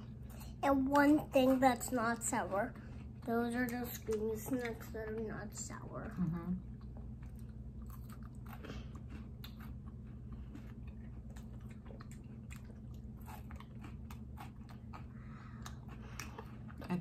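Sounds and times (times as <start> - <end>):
steady low hum: 0.0 - 17.0
crunchy wafer chewing: 6.8 - 17.0.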